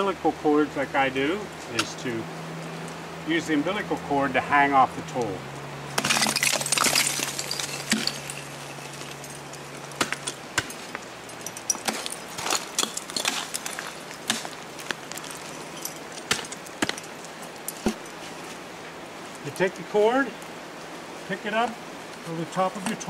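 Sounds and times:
climbing gear clinking: 0:06.1 - 0:18.5.

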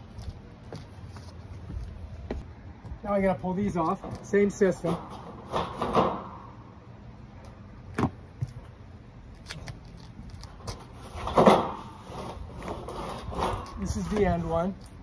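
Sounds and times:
metal shutter panels scraping: 0:03.8 - 0:06.4, 0:10.6 - 0:15.0.

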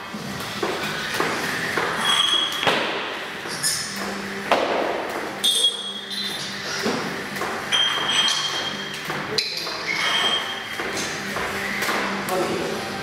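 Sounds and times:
jump rope slapping rubber floor: 0:02.5 - 0:05.4, 0:06.8 - 0:07.6.

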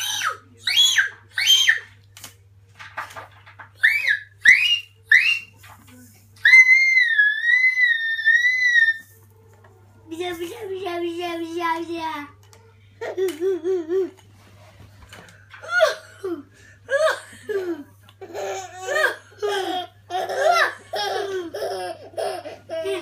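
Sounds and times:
baby laughing: 0:15.6 - 0:23.0.

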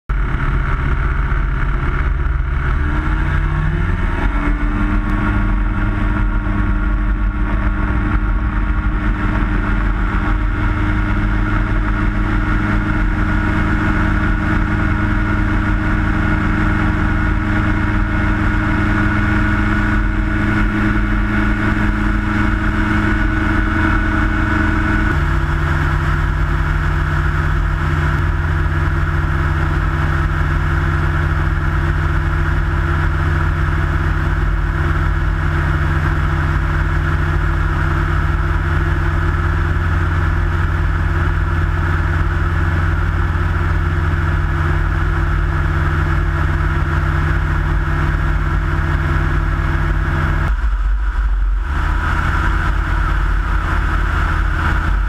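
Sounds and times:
light aircraft engine and propeller: 0:00.1 - 0:55.0.

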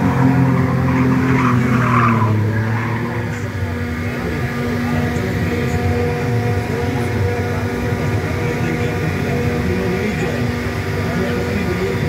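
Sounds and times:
vehicle engines droning: 0:00.0 - 0:12.0.

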